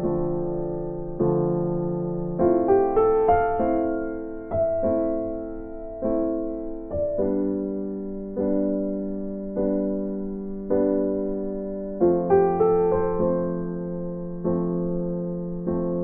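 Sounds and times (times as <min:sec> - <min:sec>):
slow gentle keyboard music: 0:00.0 - 0:16.0.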